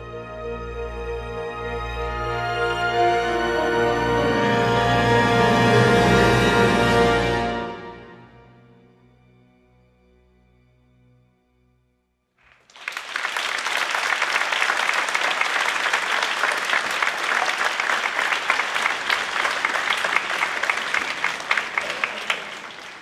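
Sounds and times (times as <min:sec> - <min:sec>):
music: 0:00.0 - 0:12.4
audience applause: 0:12.5 - 0:23.0.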